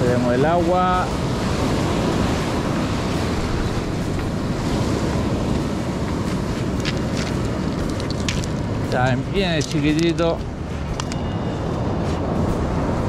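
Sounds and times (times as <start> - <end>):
ocean surf on beach: 0.0 - 13.0
wind on microphone: 0.0 - 13.0.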